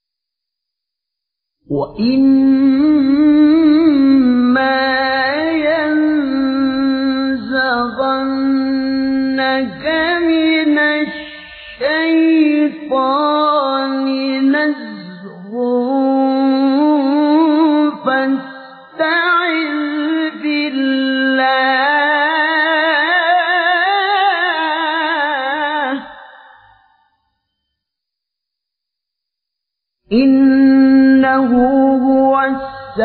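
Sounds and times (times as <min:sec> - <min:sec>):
man reciting melodically: 0:01.7 - 0:22.0.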